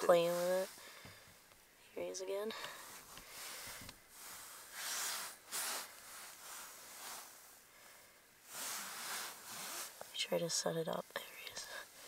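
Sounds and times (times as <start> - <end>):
person breathing softly: 0.7 - 1.4, 2.5 - 10.0.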